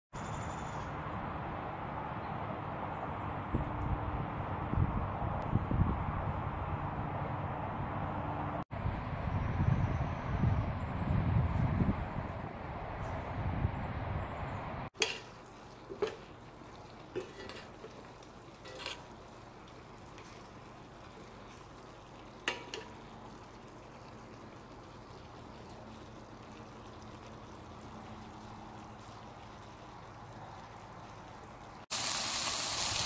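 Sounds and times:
spoon clinking against metal pot: 0:15.0 - 0:15.3.

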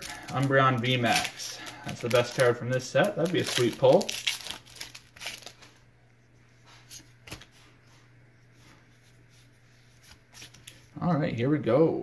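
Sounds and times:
foil wrapper crinkling: 0:00.0 - 0:05.8.

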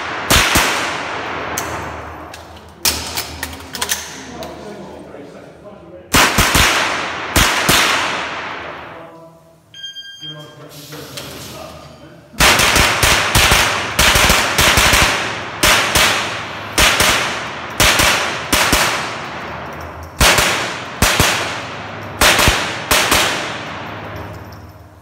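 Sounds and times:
rifle shots: 0:00.0 - 0:02.1, 0:06.1 - 0:08.9, 0:12.4 - 0:24.3
ringing echo from walls: 0:12.0 - 0:25.0.

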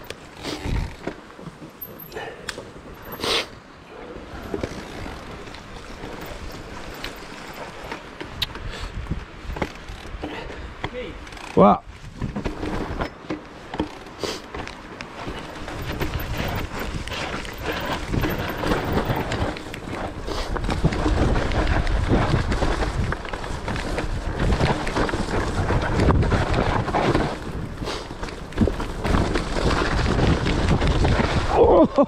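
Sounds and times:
mountain bike rattling on trail: 0:00.0 - 0:03.2, 0:03.9 - 0:32.0
wind buffeting microphone: 0:04.2 - 0:13.1, 0:15.1 - 0:32.0.

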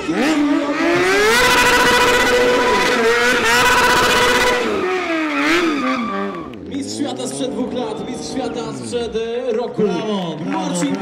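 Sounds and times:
motorcycle engine revving hard: 0:00.0 - 0:09.0
tyre spinning in burnout: 0:00.4 - 0:06.6.

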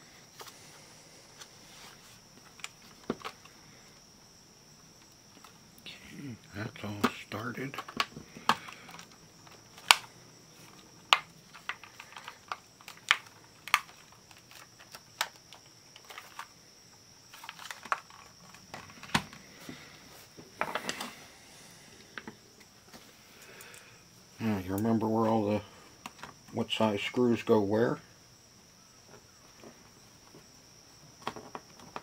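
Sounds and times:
faint high-pitched whine: 0:00.0 - 0:32.0.

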